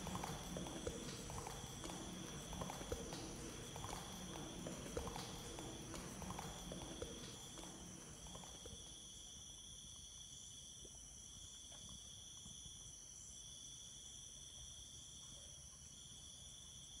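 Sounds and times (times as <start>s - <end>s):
crickets and insects trilling: 0.0s - 15.2s.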